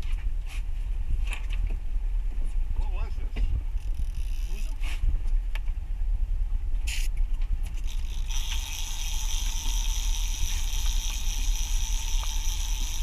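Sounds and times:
constant low rumble: 0.0 - 13.0
fishing reel drag whining: 3.7 - 4.9, 7.7 - 13.0.

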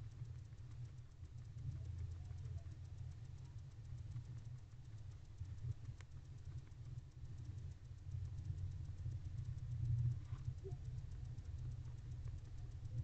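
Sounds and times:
low hum: 0.0 - 13.0.

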